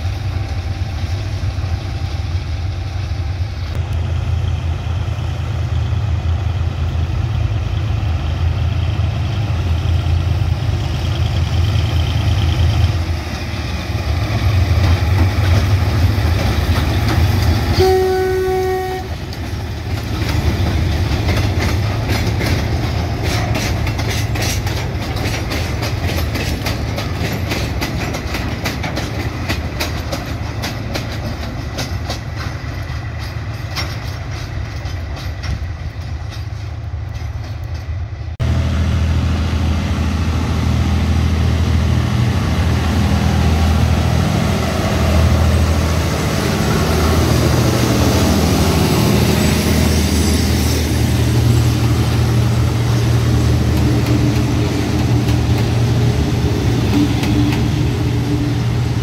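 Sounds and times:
diesel locomotive engine running: 0:00.0 - 0:59.0
wheels clicking over rail joints: 0:14.2 - 0:38.4, 0:52.2 - 0:58.5
train horn blast: 0:17.7 - 0:19.2.

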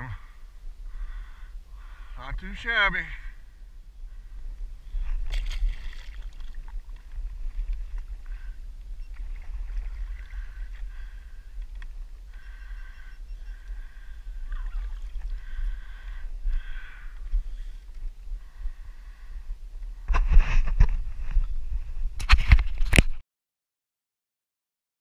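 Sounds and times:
low wind rumble on microphone: 0:00.0 - 0:23.2
water moving along hull: 0:04.9 - 0:19.0
fish splashing in water: 0:05.2 - 0:07.0.

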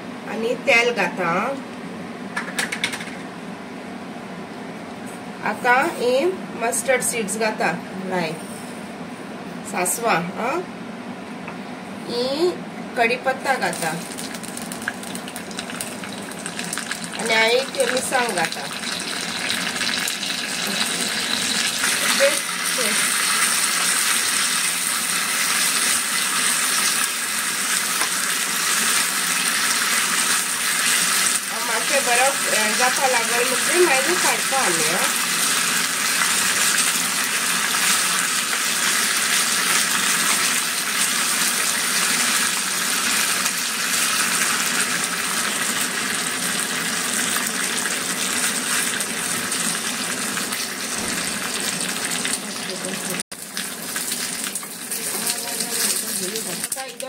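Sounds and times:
hot oil sizzling: 0:13.4 - 0:57.0.

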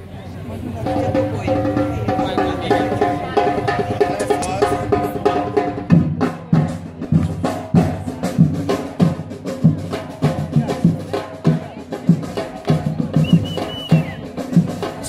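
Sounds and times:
deep drum strokes: 0:00.7 - 0:15.0
pitched music: 0:00.8 - 0:06.0.

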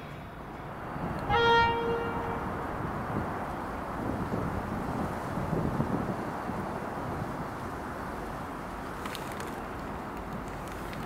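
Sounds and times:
diesel locomotive engine rumble: 0:00.0 - 0:11.0.

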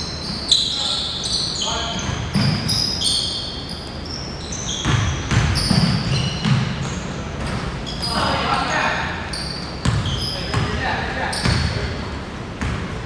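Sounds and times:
sneakers squeaking: 0:00.0 - 0:13.0
basketball bouncing: 0:04.7 - 0:07.7, 0:09.8 - 0:10.8, 0:11.4 - 0:11.9, 0:12.6 - 0:13.0.

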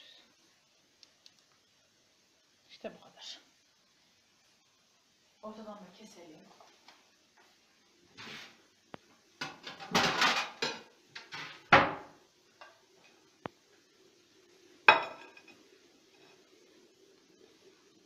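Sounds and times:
plate and cutlery clinking: 0:09.4 - 0:11.6, 0:14.9 - 0:15.6.

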